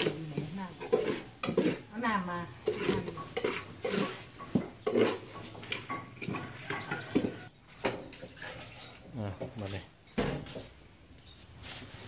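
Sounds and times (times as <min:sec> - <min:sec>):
metal spoon scraping a pot: 0:00.0 - 0:09.1.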